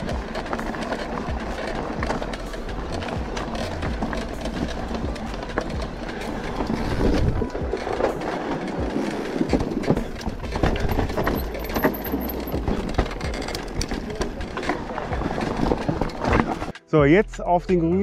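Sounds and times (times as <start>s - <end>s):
bike tyres crunching on gravel: 0.0s - 16.7s
bike rattling and knocking: 0.0s - 18.0s
wind rumble on microphone: 3.2s - 11.6s.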